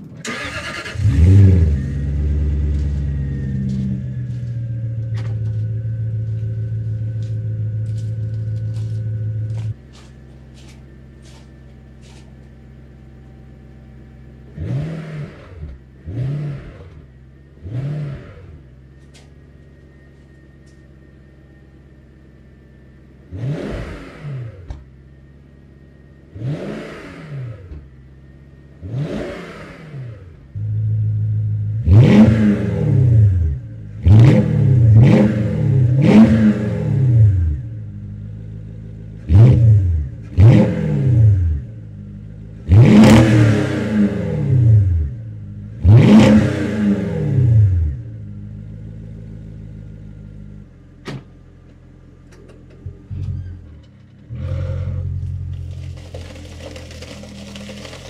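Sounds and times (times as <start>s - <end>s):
car engine idling: 0.0s - 14.6s
engine throttle blips: 0.0s - 25.2s.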